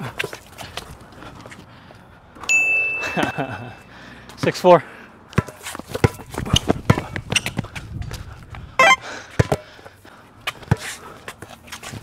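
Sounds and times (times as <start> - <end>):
basketball bouncing on concrete: 5.4 - 7.6, 8.8 - 9.6
sneakers shuffling on concrete: 5.4 - 12.0
sneaker squeak: 7.3 - 7.6, 8.8 - 9.0.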